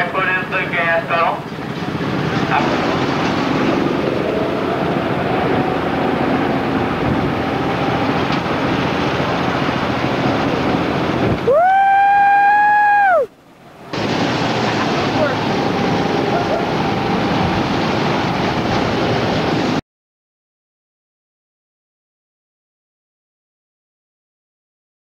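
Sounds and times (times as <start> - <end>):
go-kart engines droning: 1.5 - 12.9, 13.9 - 18.4.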